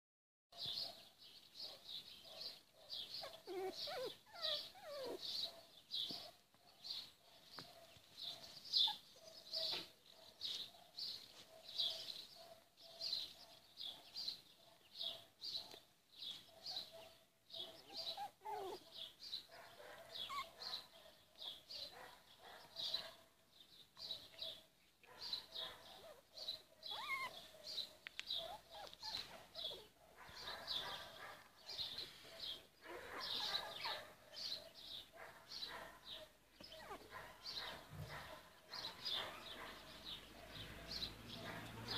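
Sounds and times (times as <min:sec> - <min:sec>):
puppy whimpering: 0:03.2 - 0:05.3, 0:18.0 - 0:18.8, 0:20.3 - 0:20.6, 0:26.9 - 0:27.4, 0:36.6 - 0:37.1.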